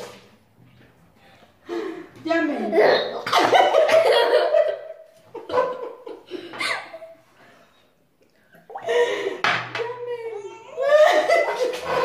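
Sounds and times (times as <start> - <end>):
girl laughing: 10.8 - 12.0.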